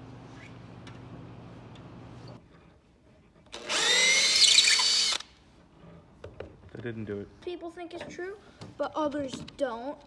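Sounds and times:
power drill motor whining: 3.5 - 5.3.

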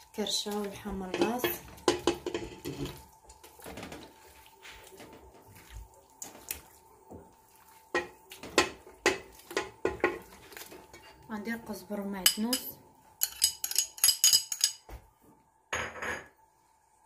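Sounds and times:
wet meat slapping into pot: 0.2 - 11.0.

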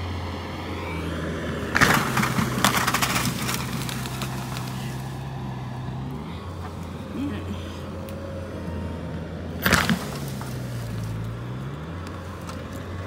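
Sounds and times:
engine running: 0.0 - 13.0
wood and branches snapping: 1.6 - 5.2, 9.6 - 13.0
loud crash: 1.7 - 4.5.

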